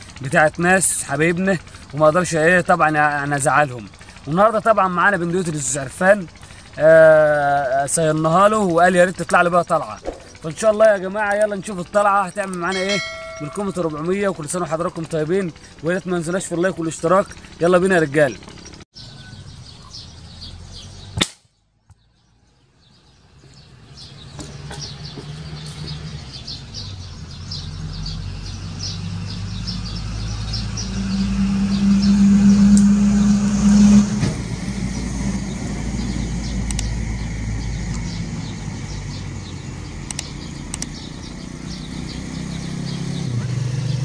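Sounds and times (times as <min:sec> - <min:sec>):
small birds chirping: 0:00.0 - 0:32.7, 0:34.8 - 0:44.0
motor vehicle passing: 0:12.7 - 0:21.2, 0:22.2 - 0:44.0.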